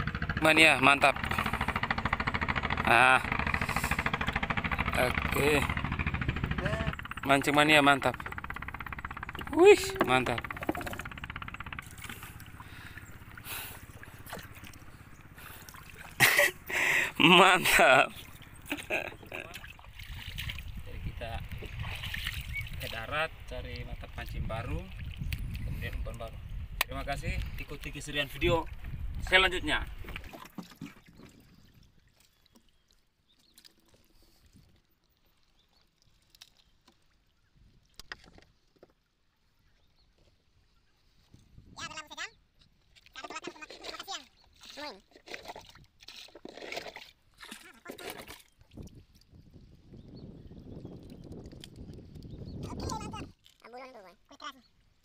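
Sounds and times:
water lapping against boat: 0.0 - 55.0
light knocks on a canoe: 10.0 - 11.1.

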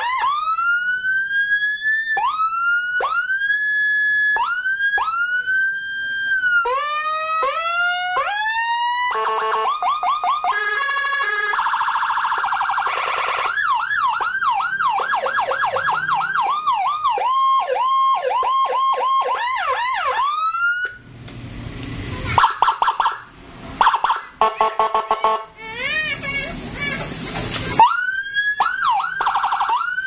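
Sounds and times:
electronic police siren: 0.0 - 21.1, 22.4 - 25.5, 27.8 - 30.0.

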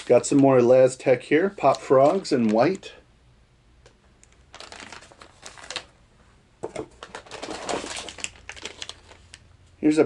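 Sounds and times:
plastic package crinkling: 1.6 - 2.9, 4.2 - 6.0, 6.8 - 9.5.

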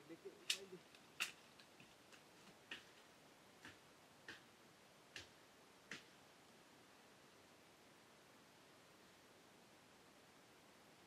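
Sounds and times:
sharp knocks of branches cut: 0.4 - 1.7, 5.2 - 6.1.

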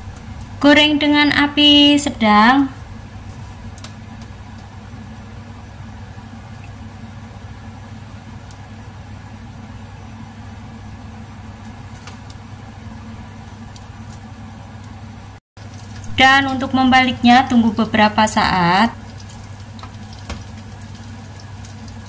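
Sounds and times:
steady low hum: 0.0 - 22.0
food frying in oil: 15.6 - 22.0.

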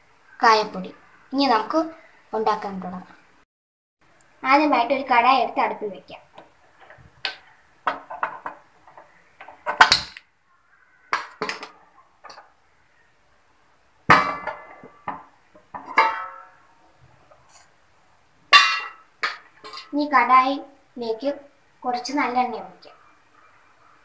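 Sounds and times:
metal pan clanking: 14.1 - 15.2, 15.8 - 16.6, 18.5 - 19.9.

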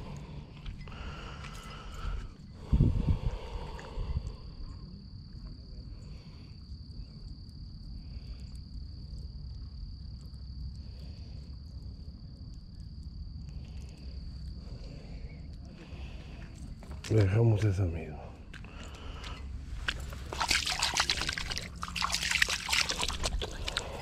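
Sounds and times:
insect trilling: 18.7 - 24.0.

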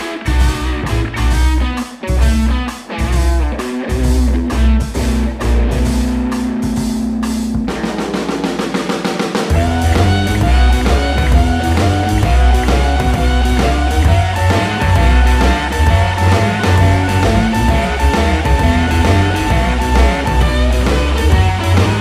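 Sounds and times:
rock band playing: 0.0 - 22.0.

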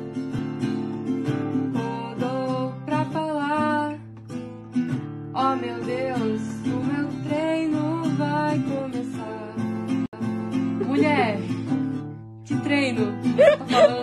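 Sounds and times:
acoustic guitar strumming: 0.0 - 14.0
person singing wordless melody: 1.7 - 4.1, 5.4 - 11.7, 12.5 - 14.0.

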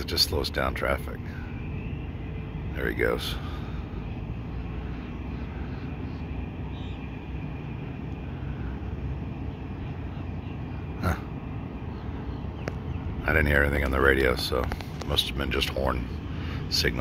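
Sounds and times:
diesel engine drone: 0.0 - 17.0.

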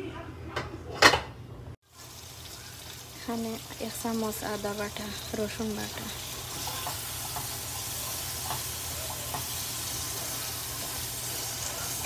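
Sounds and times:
masala sizzling in hot oil: 1.8 - 12.0
wooden spatula ticks and scrapes: 5.0 - 12.0.

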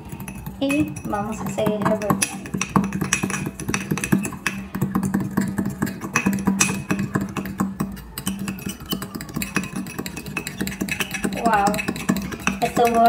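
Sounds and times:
fork clicking and scraping on glass: 0.0 - 13.0.

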